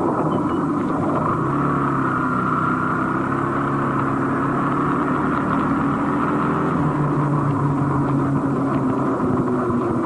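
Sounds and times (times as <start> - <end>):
motor scooter engine humming: 0.0 - 10.0.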